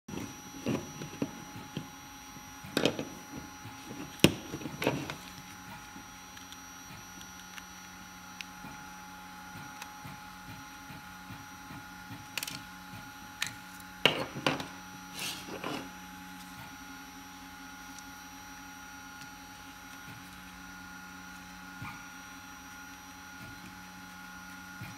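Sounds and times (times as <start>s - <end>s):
faint steady hum: 0.1s - 24.9s.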